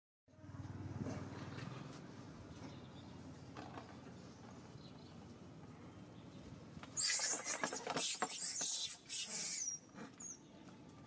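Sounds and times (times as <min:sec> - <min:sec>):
monkey screaming: 0:07.0 - 0:10.4
monkey squealing: 0:07.0 - 0:10.4.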